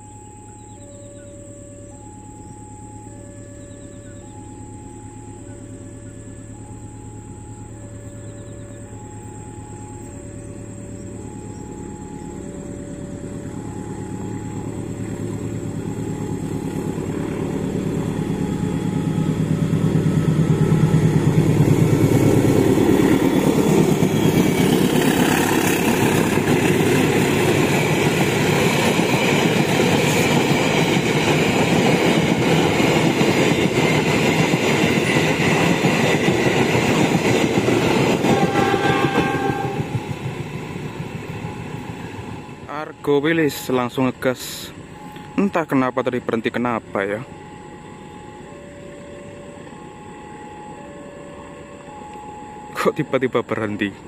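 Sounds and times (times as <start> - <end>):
two-note warning chime: 0.0 - 31.2, 41.4 - 54.0
locomotive engine rumble: 0.1 - 54.0
train wheels clattering on rails: 19.1 - 42.6
train horn blast: 38.2 - 40.1.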